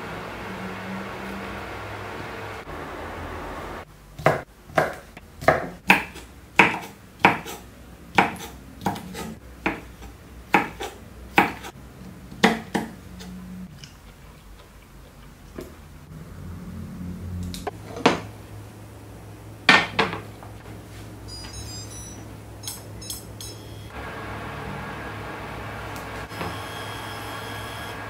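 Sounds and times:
knife chopping on cutting board: 0:04.2 - 0:11.7.

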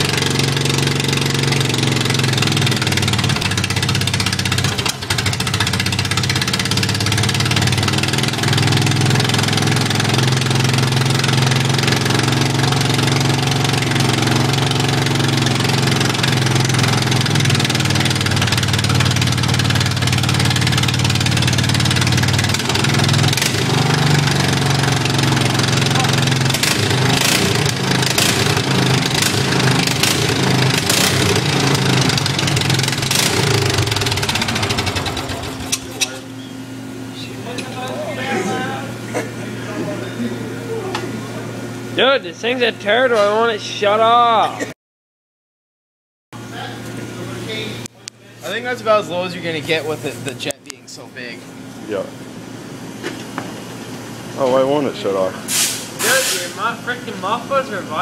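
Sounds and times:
mower engine running: 0:00.0 - 0:37.6.

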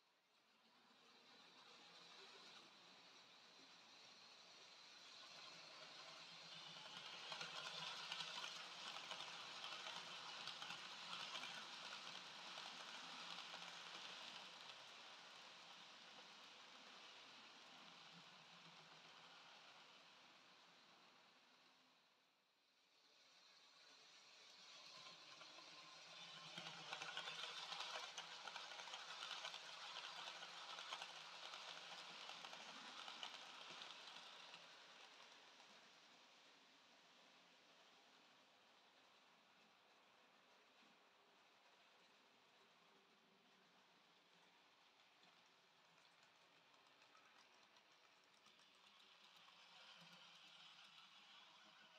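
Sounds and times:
model train motor hum: 0:00.7 - 0:38.0, 0:48.4 - 0:51.9
model train wheels clattering: 0:01.2 - 0:19.3, 0:23.5 - 0:35.9.

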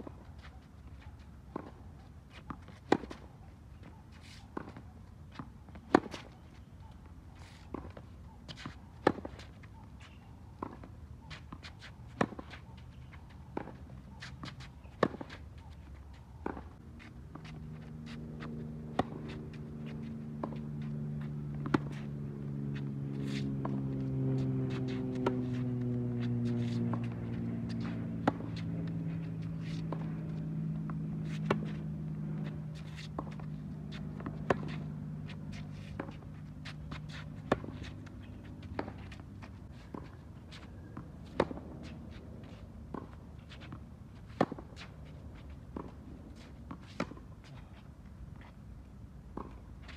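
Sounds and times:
tennis balls struck: 0:04.5 - 0:06.4, 0:07.7 - 0:09.5, 0:10.1 - 0:17.6, 0:18.4 - 0:39.3, 0:39.9 - 0:41.9
low droning hum: 0:16.8 - 0:42.5.

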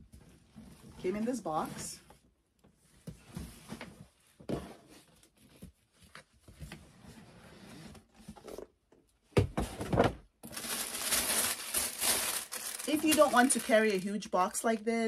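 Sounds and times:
tissue paper crinkling: 0:10.4 - 0:14.3.

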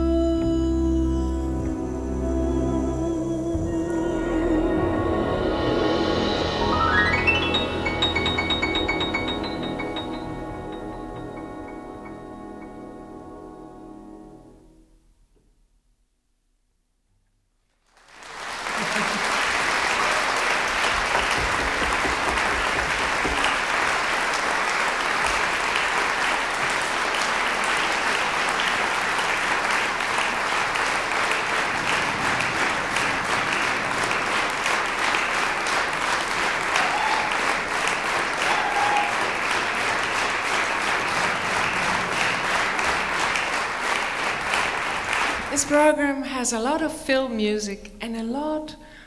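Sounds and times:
large audience applauding: 0:06.7 - 0:12.1, 0:17.8 - 0:45.9.

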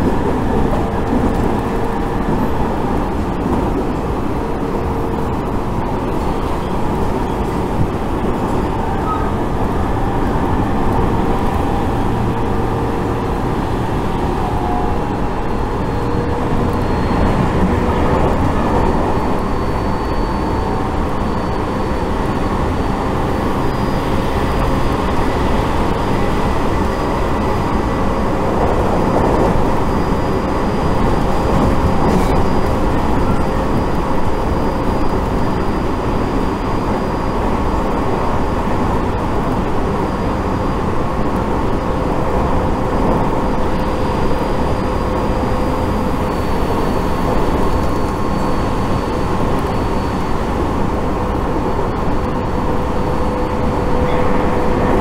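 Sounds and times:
train rumble inside car: 0:00.0 - 0:55.0
faint steady whine: 0:14.0 - 0:55.0.

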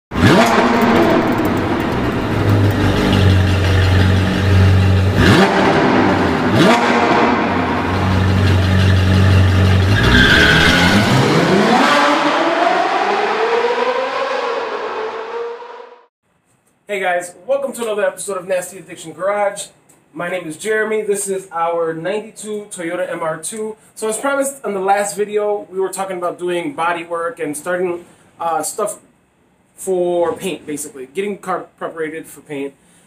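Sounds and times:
car engine revving: 0:00.1 - 0:16.1.

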